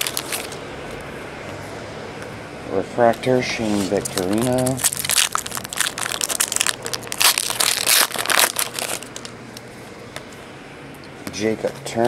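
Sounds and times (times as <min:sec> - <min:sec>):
foil wrapper crinkling: 0:00.0 - 0:00.6, 0:04.0 - 0:09.3.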